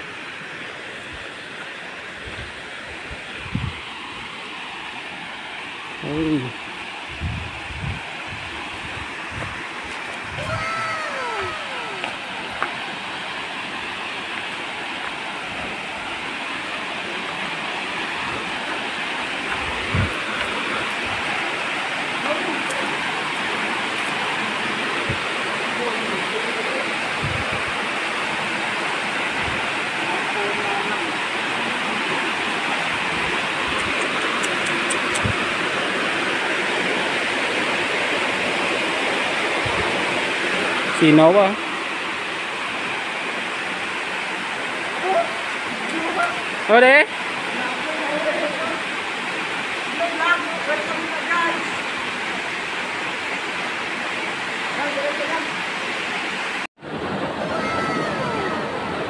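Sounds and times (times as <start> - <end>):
waterfall splashing into pool: 10.4 - 12.3
waterfall rushing into pool: 10.4 - 33.6, 35.4 - 59.0.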